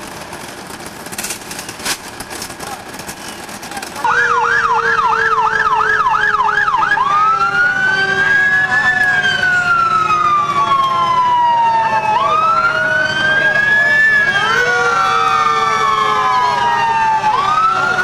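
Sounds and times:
emergency siren yelp and wail: 4.0s - 18.0s.

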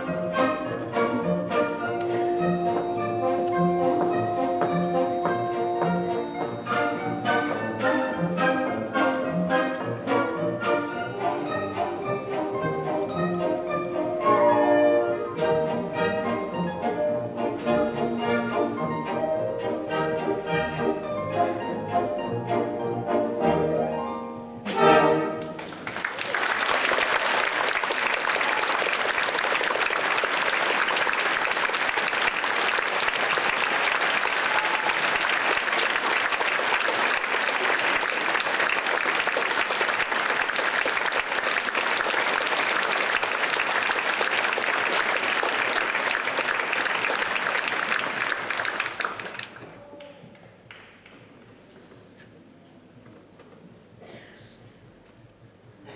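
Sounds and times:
orchestra closing chord: 11.0s - 25.8s
audience applauding: 25.4s - 50.1s.

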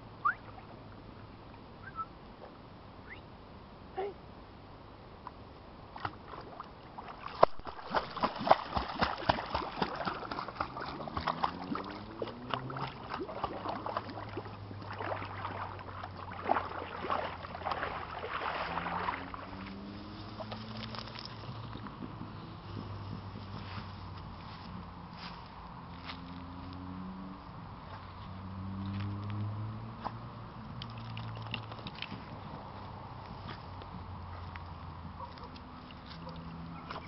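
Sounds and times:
dog splashing through water: 6.0s - 22.0s, 27.9s - 32.8s, 34.4s - 37.0s.

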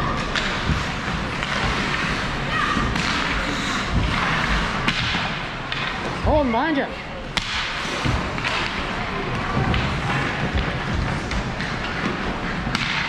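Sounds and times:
skates and sticks hissing on ice: 0.4s - 4.8s, 7.5s - 8.6s.

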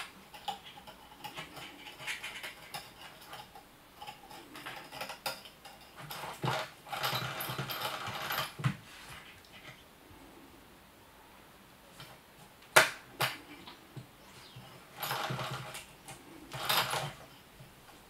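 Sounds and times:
cat toy clicking and whirring: 15.0s - 17.2s.

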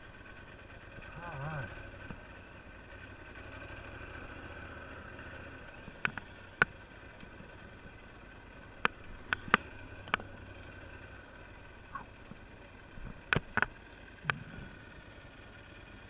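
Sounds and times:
motorcycle engine running: 0.0s - 16.0s
sharp knocks and clicks: 5.9s - 6.8s, 13.0s - 14.4s.

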